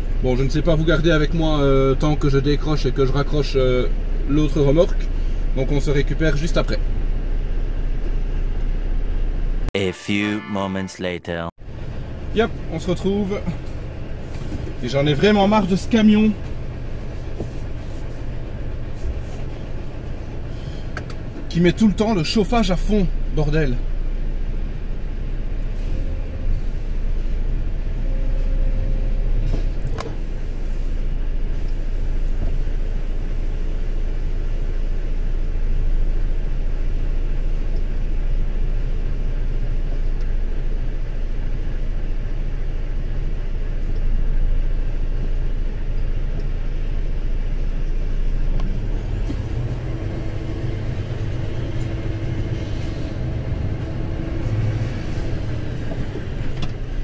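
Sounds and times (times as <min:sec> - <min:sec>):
truck engine running: 0:11.6 - 0:57.0.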